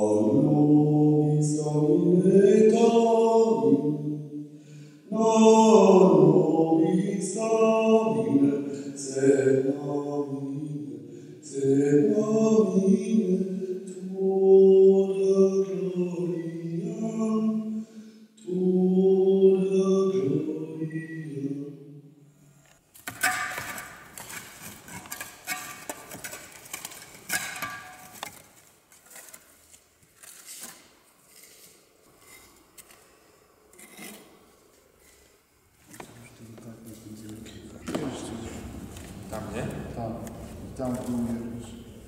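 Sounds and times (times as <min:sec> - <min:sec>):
person singing a slow chant: 0:00.0 - 0:22.5, 0:37.4 - 0:42.0.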